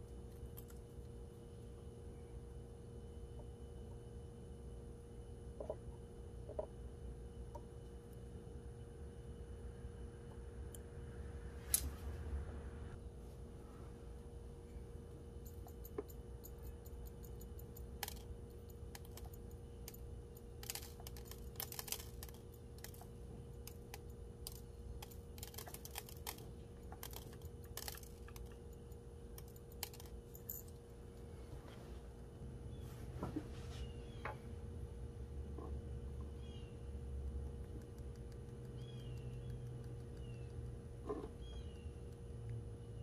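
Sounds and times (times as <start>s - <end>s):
faint steady hum: 0.0s - 43.0s
small chips clicking: 15.5s - 30.8s.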